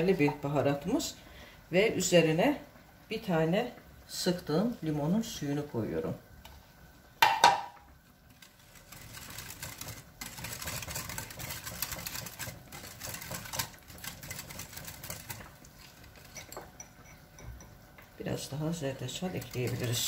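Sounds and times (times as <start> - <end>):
whisk beating batter in glass bowl: 8.3 - 20.0.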